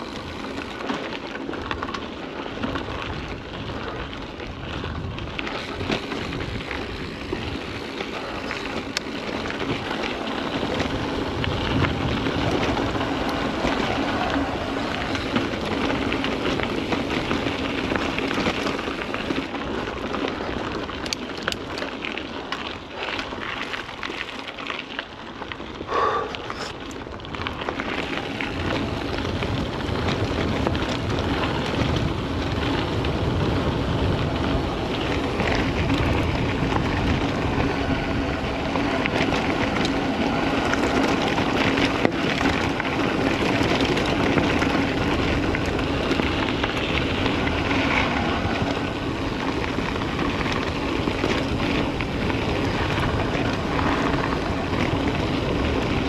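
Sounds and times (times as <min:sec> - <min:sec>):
bike tyres rattling over gravel: 0:00.0 - 0:56.0
wind on microphone: 0:02.8 - 0:18.5, 0:28.4 - 0:56.0.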